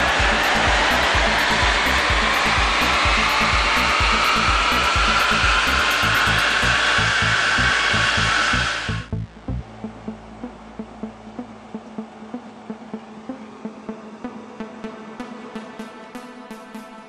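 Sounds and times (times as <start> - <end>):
wheels spinning rollers: 0.0 - 9.1.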